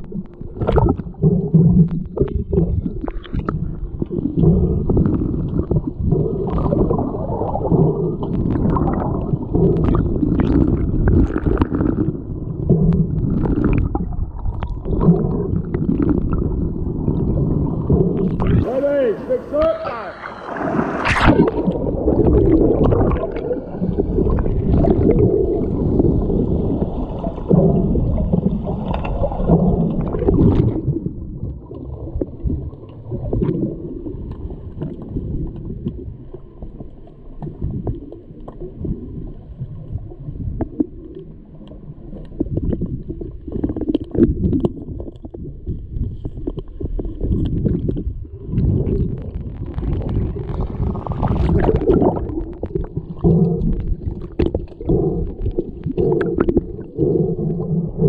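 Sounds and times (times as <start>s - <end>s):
bubbling water: 0.0s - 58.0s
muffled underwater rumble: 0.0s - 58.0s
small knocks underwater: 27.4s - 39.2s, 39.8s - 57.1s.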